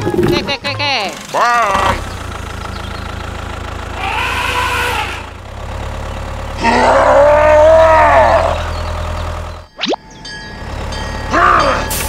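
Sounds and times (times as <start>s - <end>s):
low engine hum: 0.0s - 12.0s
cow mooing: 4.0s - 5.3s, 6.6s - 8.7s.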